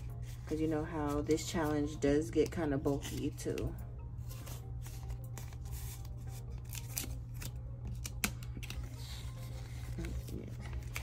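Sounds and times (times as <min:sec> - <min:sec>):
paper crinkling: 0:04.3 - 0:11.0.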